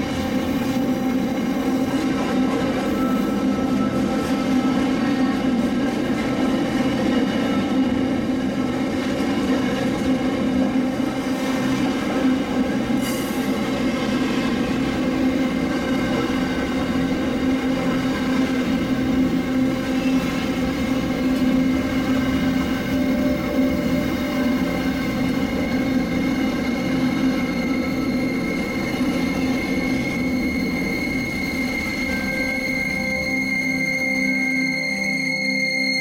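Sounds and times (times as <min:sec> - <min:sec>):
train running: 0:00.0 - 0:36.0.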